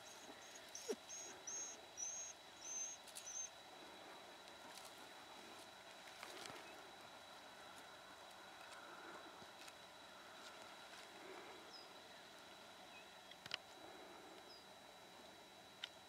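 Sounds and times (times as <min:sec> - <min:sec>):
short high whistled calls: 0:00.0 - 0:03.6
faint steady high whine: 0:00.0 - 0:16.0.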